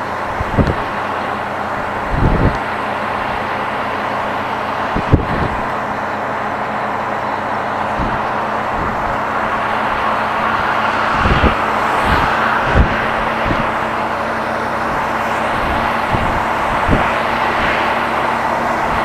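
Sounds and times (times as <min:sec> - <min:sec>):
truck engine and road noise: 0:00.0 - 0:19.0
low thumps: 0:07.9 - 0:17.9.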